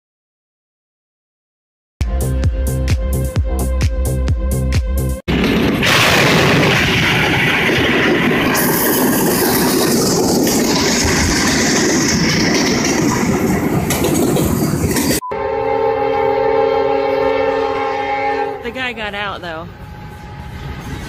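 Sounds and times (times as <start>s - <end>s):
freight train rumbling past: 5.0s - 21.0s
train crashing into trailer: 5.3s - 15.2s.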